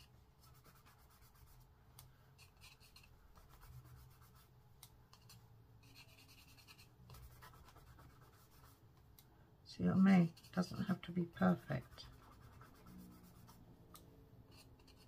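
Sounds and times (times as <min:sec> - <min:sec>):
pencil scratching on card: 0:00.0 - 0:01.7, 0:02.4 - 0:04.5, 0:05.1 - 0:08.8, 0:10.1 - 0:13.6, 0:14.5 - 0:15.0.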